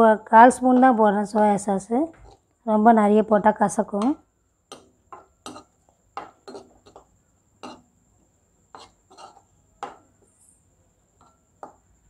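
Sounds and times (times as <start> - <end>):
spatula scraping a pan: 2.2 - 2.5, 4.7 - 8.0, 8.7 - 10.4.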